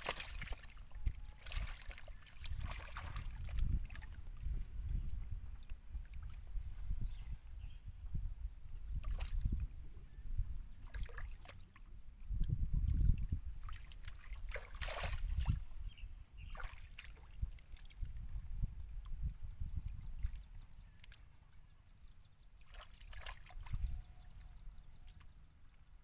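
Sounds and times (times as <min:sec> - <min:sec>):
hands splashing in muddy water: 0:00.0 - 0:04.2, 0:13.6 - 0:15.7, 0:22.6 - 0:24.0.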